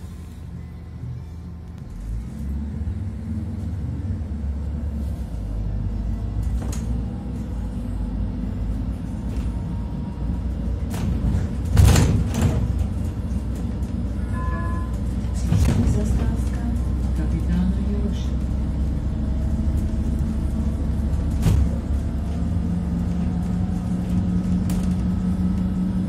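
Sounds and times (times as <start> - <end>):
bus engine rumble: 0.0 - 26.0
loud clatter: 10.8 - 14.2.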